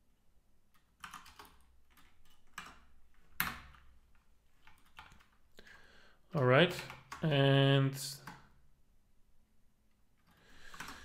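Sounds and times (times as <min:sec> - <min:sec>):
typing on computer keyboard: 0:00.7 - 0:05.4, 0:06.7 - 0:07.4, 0:08.2 - 0:08.6, 0:10.2 - 0:11.0.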